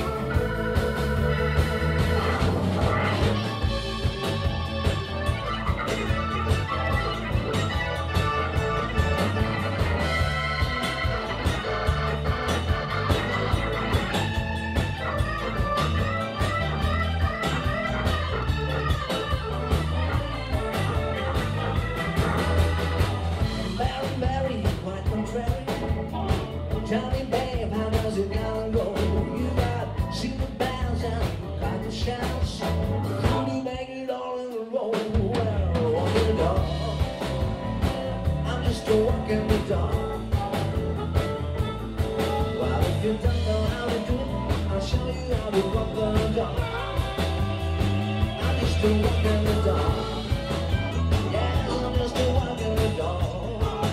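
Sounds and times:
blues harmonica solo: 0.0s - 24.6s, 36.4s - 53.9s
blues band playing: 0.0s - 53.9s.

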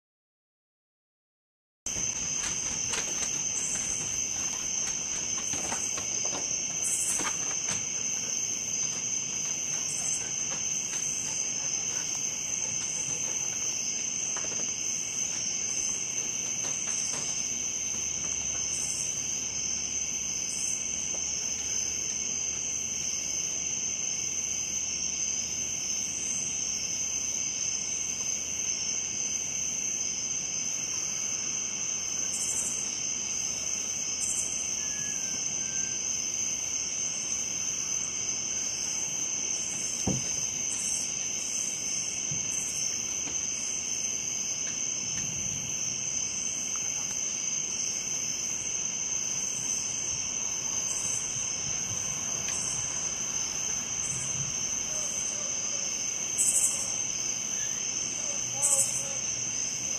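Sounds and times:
crickets high trill: 1.9s - 59.9s
insects low buzz: 1.9s - 59.9s
short thump: 40.0s - 40.5s.

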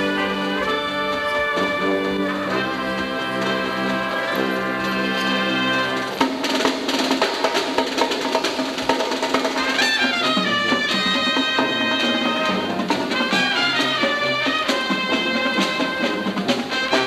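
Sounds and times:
marching band playing: 0.0s - 17.0s.

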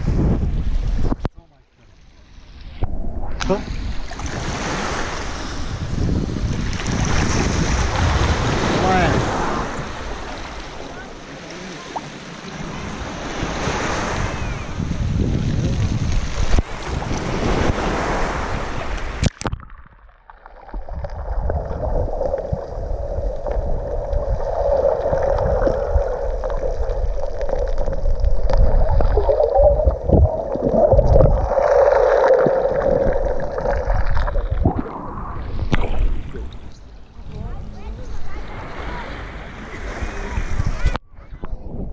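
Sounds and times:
wind: 0.0s - 41.9s
muffled underwater rumble and gurgle: 2.1s - 4.3s, 18.6s - 41.9s
sea water lapping: 2.4s - 19.4s, 20.4s - 41.0s.

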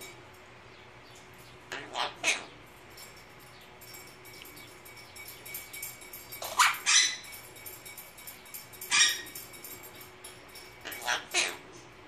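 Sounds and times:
parakeet squeaky calls: 1.7s - 2.5s, 6.4s - 7.2s, 8.9s - 9.4s, 10.9s - 11.6s.

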